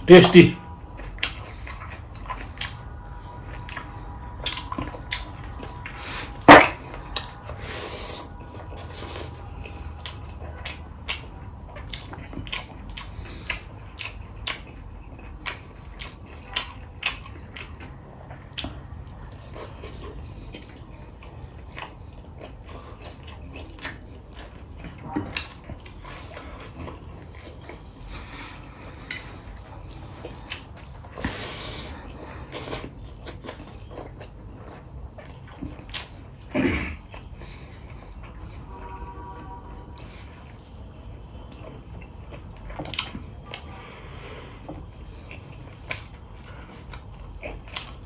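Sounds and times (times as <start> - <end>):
chewing with wet smacks: 0.0 - 38.7, 39.4 - 48.0.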